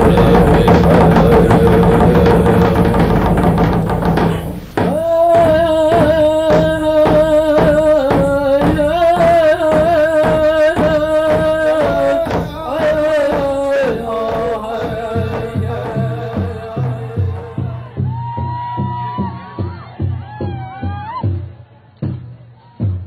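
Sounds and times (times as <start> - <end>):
men singing: 0.0 - 18.0
steady drumbeat: 0.0 - 23.0.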